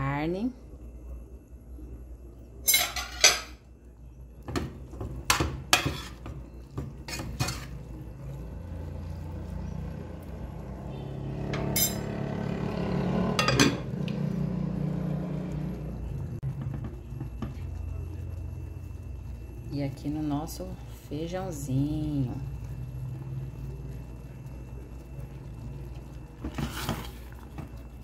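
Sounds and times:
steady low hum: 0.0 - 28.0
metal spoon scraping a pot: 2.7 - 3.6, 5.3 - 6.3, 7.0 - 7.9, 11.5 - 12.2, 26.4 - 27.2
spoon knocking on pot: 4.5 - 7.6.

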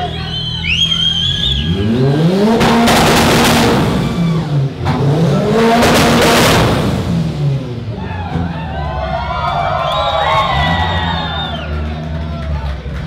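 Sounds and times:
car engine revving: 0.6 - 8.7.

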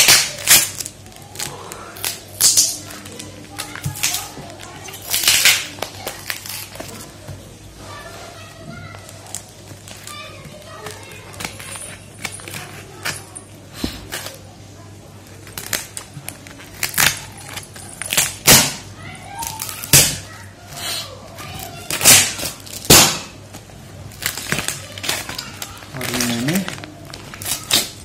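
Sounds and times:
paper crinkling and scraping: 24.1 - 28.0
paper ripping: 24.1 - 28.0.

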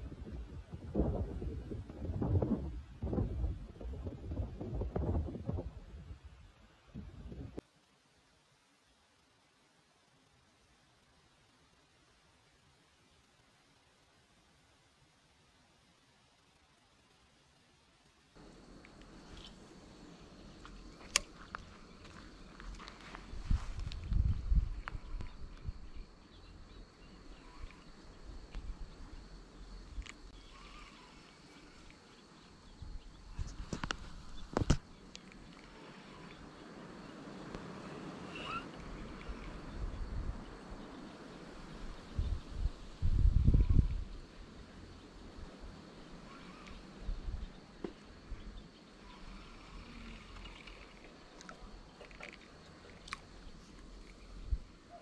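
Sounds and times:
wind rumble on microphone: 0.0 - 7.6, 20.2 - 30.9, 32.6 - 35.1, 36.9 - 48.6, 52.4 - 54.8
high insect-like tone: 8.8 - 55.0
light clicks: 20.6 - 21.7
faint bird chirps: 24.4 - 37.3, 37.9 - 45.2, 46.0 - 55.0.

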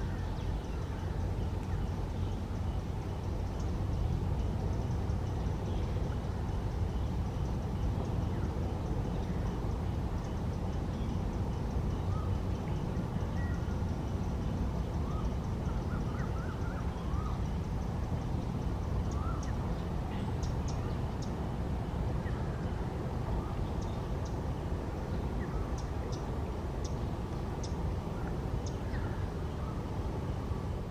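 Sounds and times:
steady low rumble: 0.0 - 30.9
birds chirping and calling: 10.2 - 21.4.

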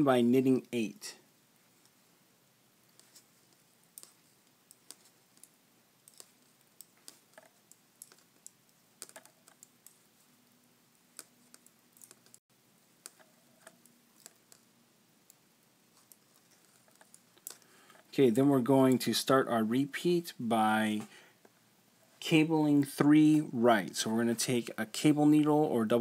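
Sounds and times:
metal knitting needles clicking: 2.9 - 10.1, 10.9 - 12.4, 13.0 - 18.0.

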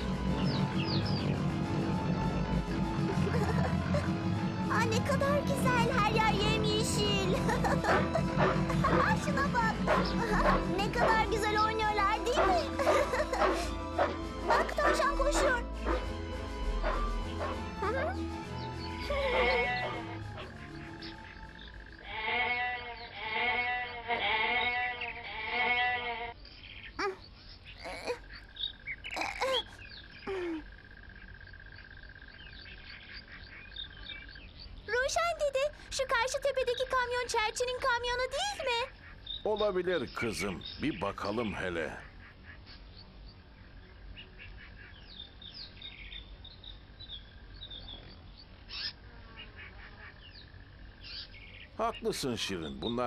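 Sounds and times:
birds chirping: 0.0 - 53.0
goat bleating: 19.0 - 20.2, 22.0 - 26.4.

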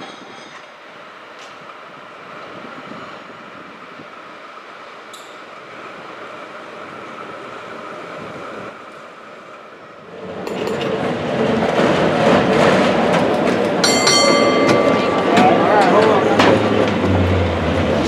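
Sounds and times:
cable car running: 0.0 - 18.0
cable car clattering and rattling: 10.1 - 18.0
high metallic ringing: 13.8 - 16.2.

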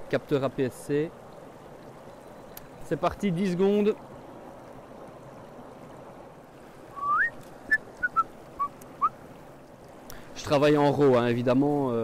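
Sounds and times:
stream rushing over stones: 0.0 - 12.0
whistled notes: 6.9 - 9.1.

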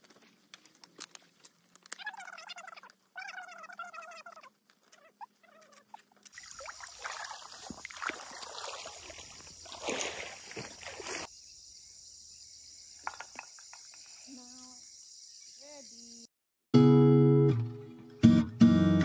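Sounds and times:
river water flowing over stones: 6.3 - 11.3
high insect drone: 6.4 - 16.3.

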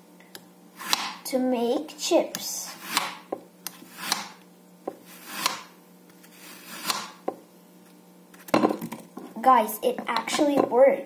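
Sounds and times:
blade scraping apple slices: 0.8 - 1.2, 2.3 - 4.4, 5.0 - 7.2.

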